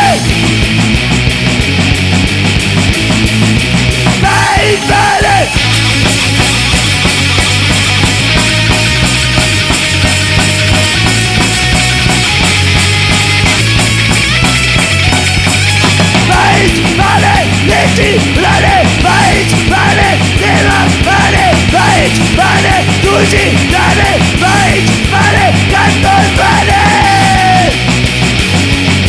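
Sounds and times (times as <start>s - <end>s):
rock band playing: 0.0s - 29.0s
melodic lead line: 5.4s - 28.3s.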